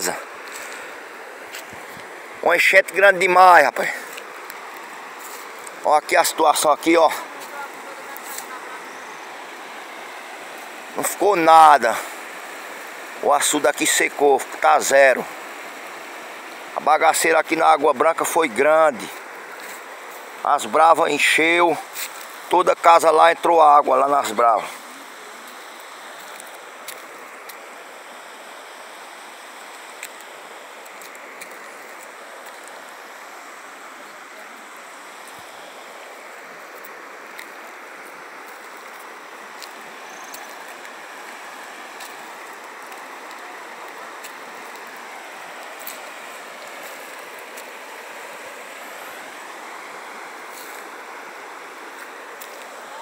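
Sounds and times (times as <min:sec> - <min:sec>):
floodwater rushing: 0:00.0 - 0:53.0.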